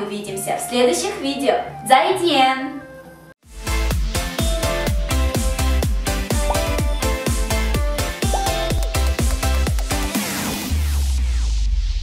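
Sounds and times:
deep bass note: 0:04.4 - 0:09.7.

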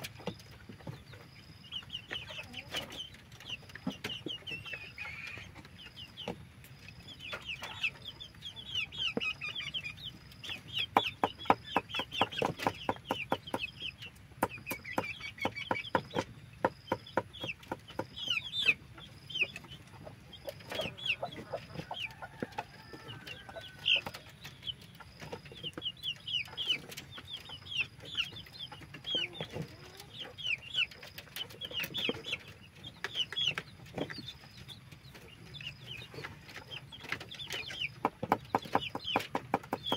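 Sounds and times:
chickens clucking: 0:00.0 - 0:39.9.

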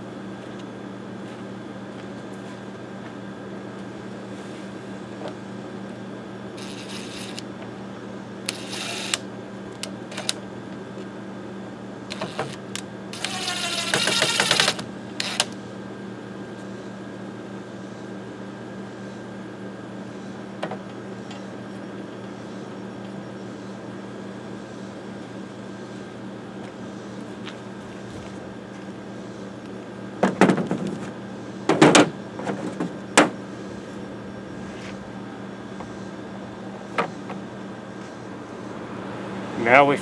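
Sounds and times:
cordless drill driving screws: 0:06.6 - 0:07.4, 0:08.5 - 0:09.2, 0:10.1 - 0:10.4, 0:12.1 - 0:15.5.

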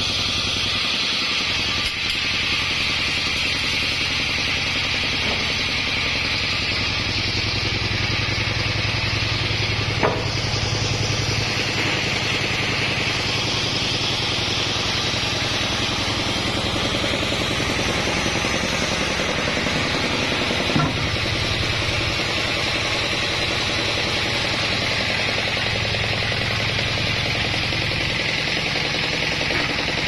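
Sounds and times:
sawmill machinery droning: 0:00.0 - 0:30.0
sharp knock: 0:10.0 - 0:10.4.

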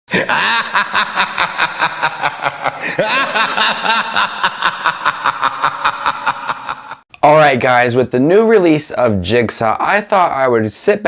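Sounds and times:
cackling laugh: 0:00.1 - 0:07.0.

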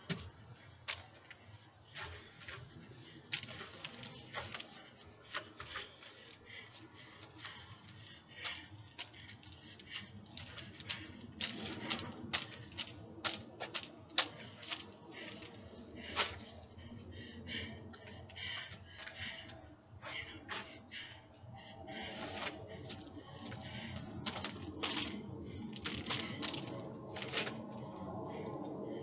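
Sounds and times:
hula hoop clicks and taps: 0:03.3 - 0:06.4, 0:07.1 - 0:16.4, 0:22.9 - 0:27.6.

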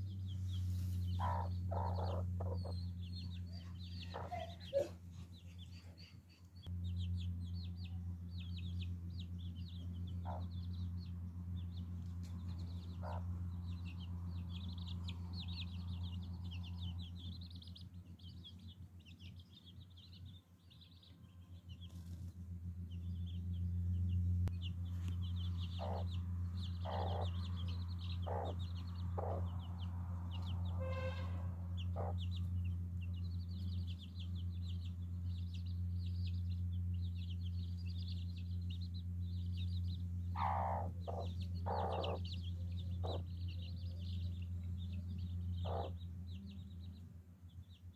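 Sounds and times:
chicks peeping: 0:00.0 - 0:47.9
hen clucking: 0:00.7 - 0:05.9, 0:10.1 - 0:10.7, 0:12.2 - 0:13.6, 0:25.1 - 0:32.6, 0:40.4 - 0:43.6, 0:45.4 - 0:46.0
low hum: 0:06.6 - 0:47.8.

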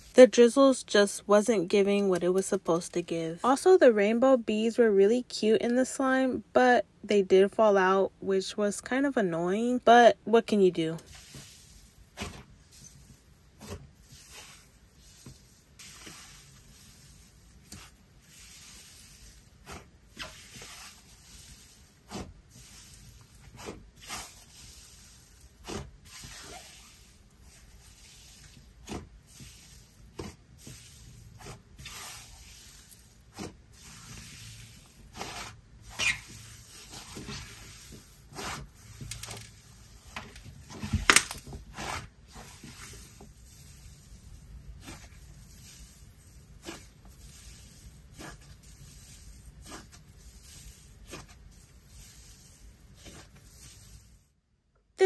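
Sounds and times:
slime crackling and popping: 0:40.6 - 0:43.0.

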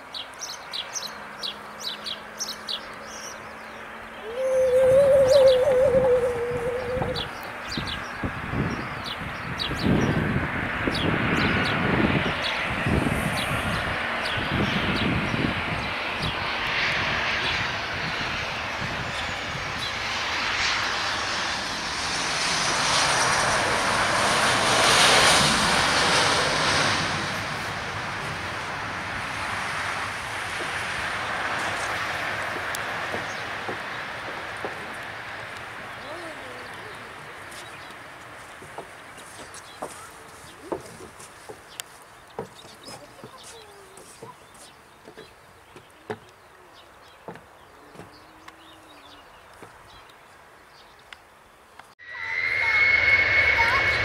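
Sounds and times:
jet engines rushing: 0:00.0 - 0:40.8, 0:52.0 - 0:54.0
short chirps and calls: 0:04.2 - 0:07.4.

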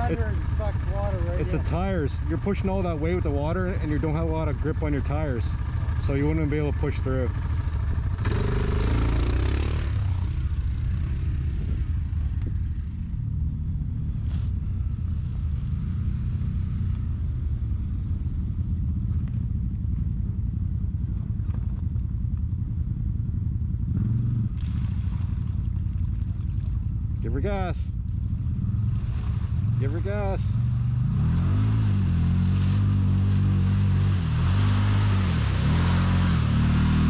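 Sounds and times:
atv engine running: 0:00.0 - 0:37.0.

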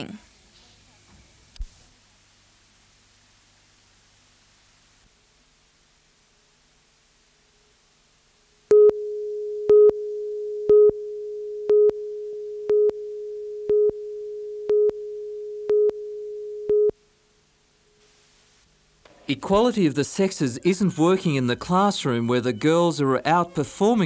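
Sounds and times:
countdown beeps: 0:08.7 - 0:16.9
steady pitched tone: 0:08.7 - 0:16.9.

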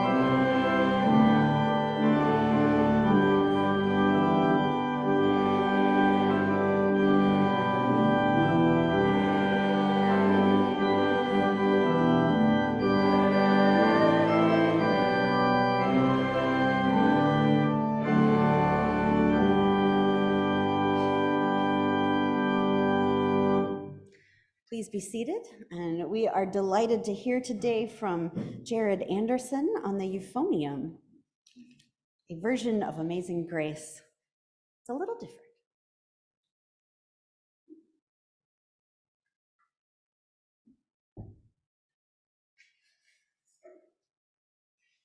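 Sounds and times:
church organ chords: 0:00.0 - 0:24.0.

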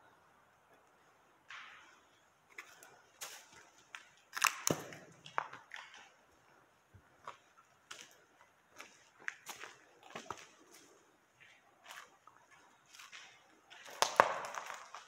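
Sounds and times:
footsteps crunching on grit: 0:07.2 - 0:15.0.

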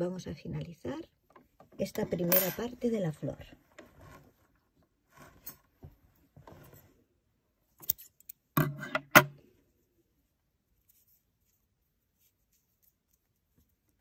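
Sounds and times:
yarn rustling: 0:09.6 - 0:14.0.

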